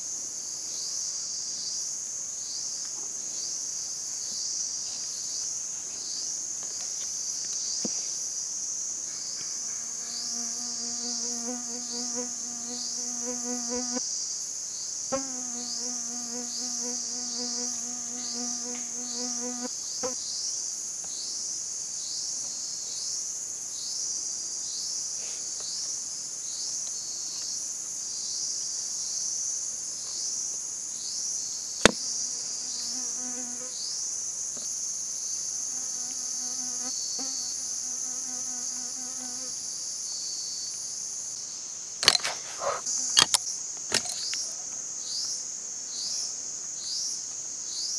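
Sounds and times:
insects buzzing high and pulsing: 8.4 - 20.4, 31.0 - 47.9
sharp clicks of trap handling: 42.0 - 42.4, 43.2 - 44.4.

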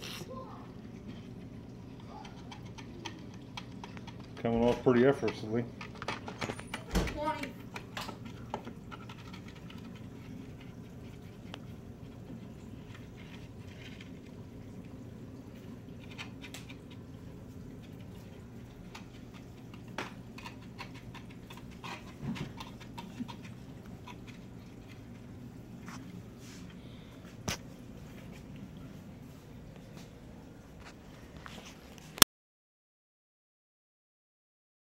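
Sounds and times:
algae cleaner scraping glass: 0.0 - 0.3
aquarium equipment humming: 0.0 - 32.2.

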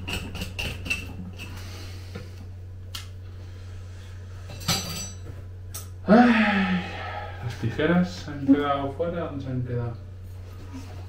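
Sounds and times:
low hum: 6.0 - 8.5.

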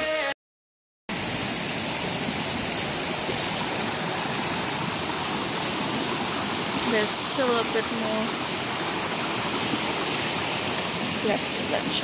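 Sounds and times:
waterfall rushing over rocks: 1.1 - 12.0.

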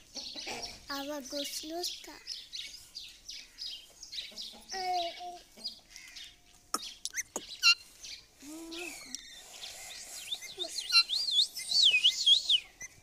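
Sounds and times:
parakeet squawks and chirps: 6.0 - 7.8, 9.0 - 13.0.

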